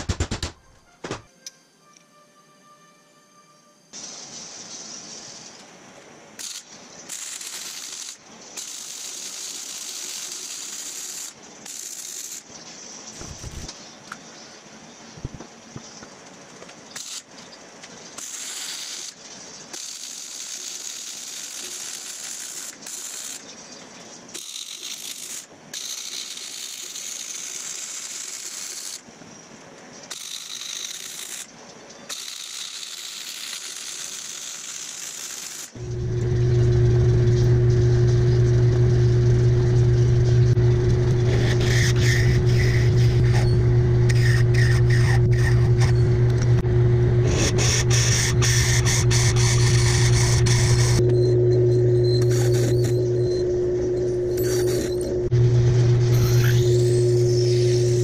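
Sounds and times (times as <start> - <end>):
arc welding crackling hiss: 4.0 - 13.8, 15.2 - 40.6, 41.2 - 46.4, 47.2 - 51.0, 52.2 - 53.0, 53.8 - 58.0
metal lathe humming: 35.8 - 58.0
drill boring into metal tube: 47.2 - 58.0.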